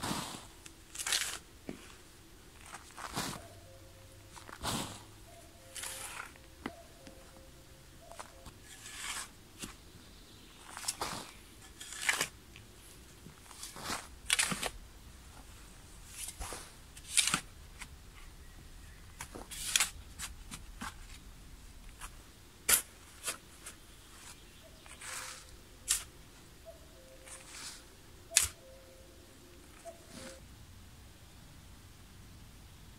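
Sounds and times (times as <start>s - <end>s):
spade scraping into sandy soil: 5.7s - 6.4s, 8.1s - 9.8s, 10.7s - 12.3s, 24.8s - 26.1s, 27.2s - 28.6s, 29.8s - 30.4s.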